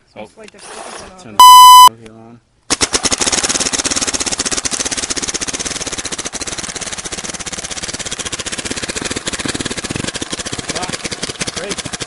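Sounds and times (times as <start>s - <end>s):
paintball marker rapid firing: 2.7s - 12.0s.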